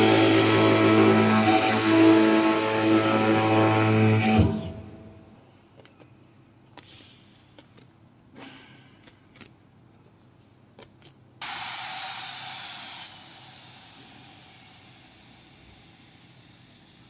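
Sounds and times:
high whistle gliding down: 0.0s - 5.2s, 11.4s - 16.8s
air hissing: 0.0s - 5.3s, 11.4s - 17.0s.

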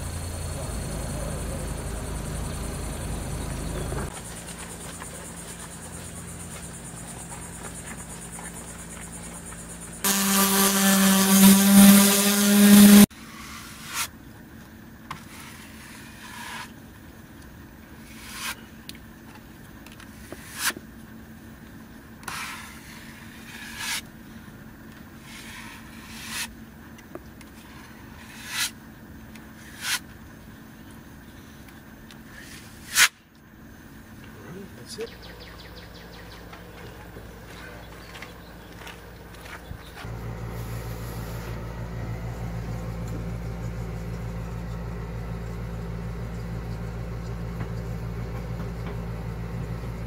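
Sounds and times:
loud pitched hum: 0.0s - 14.1s, 33.9s - 50.0s
putty knife scraping: 18.1s - 18.6s, 22.2s - 24.0s, 25.2s - 26.5s, 27.5s - 28.8s, 29.6s - 30.0s.

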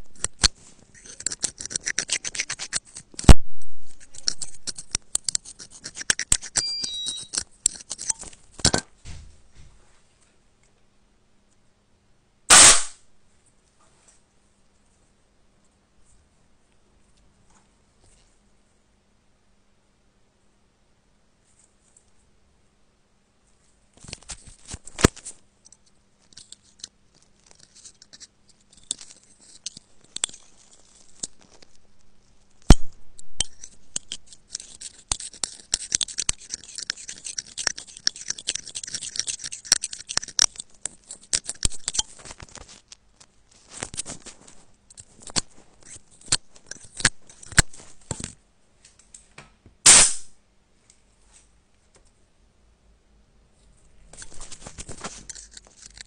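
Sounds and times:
tool scraping in charging port: 0.2s - 8.2s, 33.4s - 42.1s, 44.9s - 47.8s, 54.2s - 56.0s
sharp click: 12.5s - 13.0s, 49.9s - 50.3s
short loud burst: 12.5s - 13.0s.

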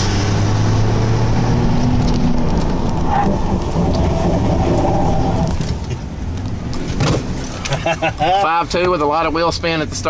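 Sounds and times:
engine drone from inside truck cab: 0.0s - 10.0s
road and wind noise: 0.0s - 10.0s.

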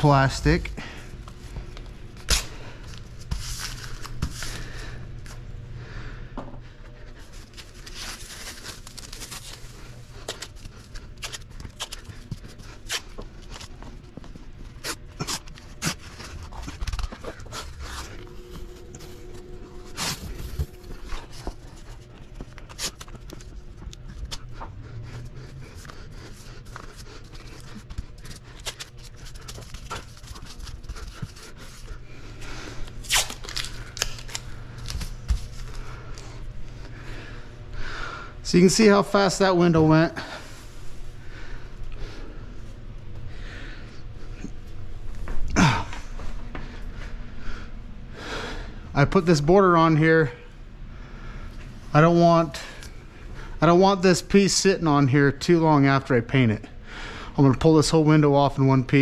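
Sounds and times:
plastic film handled: 7.4s - 13.8s, 33.0s - 35.8s
masking tape pulled and torn: 32.9s - 35.4s.

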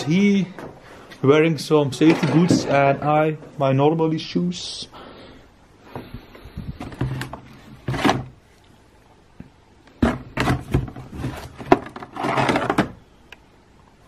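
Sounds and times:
scraping rustle: 10.9s - 12.8s.

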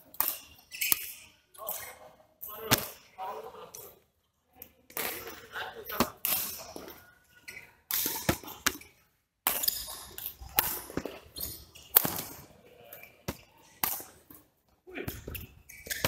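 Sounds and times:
rackets hitting shuttlecock: 0.1s - 1.2s, 2.6s - 3.1s, 4.9s - 7.0s, 7.9s - 14.4s, 15.0s - 16.0s.

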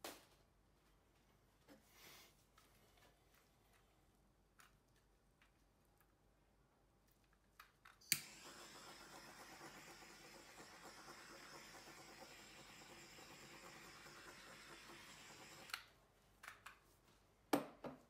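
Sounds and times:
torch igniter click: 8.1s - 8.5s
torch flame hissing: 8.2s - 15.8s.

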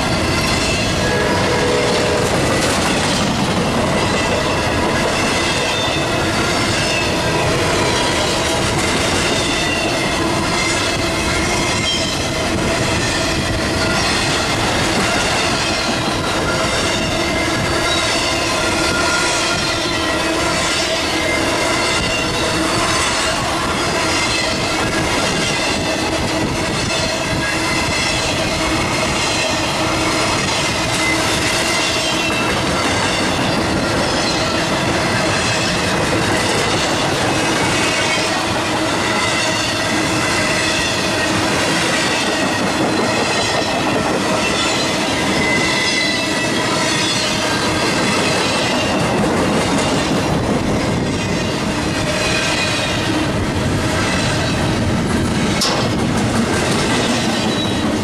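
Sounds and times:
train wheels rumbling and clacking: 0.0s - 58.0s
high-pitched wheel squeal: 42.0s - 49.1s.

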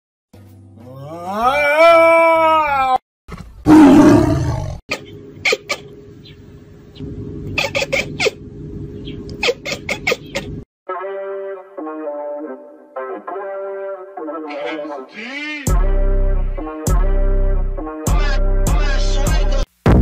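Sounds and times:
steady low hum: 4.9s - 10.6s.

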